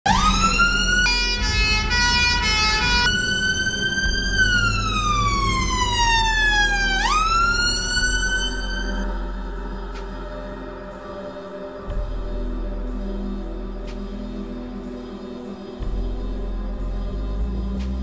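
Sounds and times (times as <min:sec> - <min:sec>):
emergency vehicle siren: 0:00.0 - 0:12.2
low rumble: 0:00.1 - 0:18.0.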